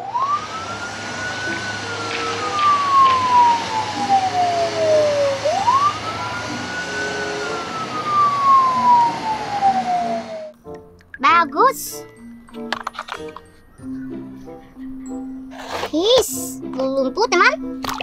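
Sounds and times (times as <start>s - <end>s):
police siren wailing: 0.0s - 10.6s.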